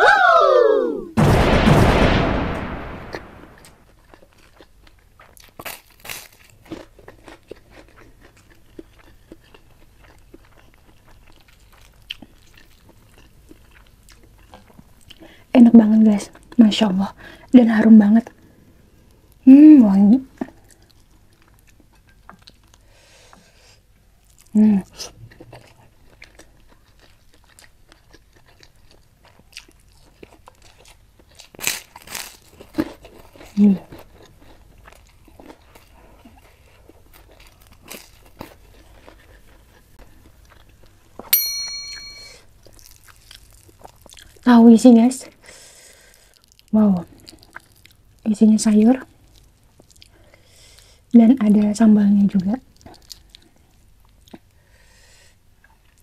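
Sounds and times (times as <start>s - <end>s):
crunching cracker bites: 2.7s - 14.8s, 25.6s - 40.9s, 42.6s - 44.4s
chewing with mouth closed: 3.9s - 15.4s, 20.4s - 22.9s, 24.2s - 41.0s, 42.6s - 44.4s, 45.2s - 48.2s, 49.1s - 51.0s, 52.7s - 54.6s.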